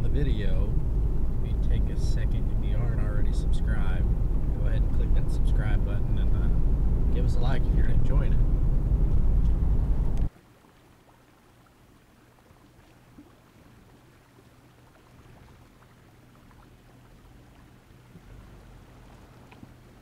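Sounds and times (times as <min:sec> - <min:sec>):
car engine running low: 0:00.0 - 0:10.3, 0:17.0 - 0:20.0
loud low rumble: 0:00.0 - 0:10.3
creek water over rocks: 0:10.3 - 0:20.0.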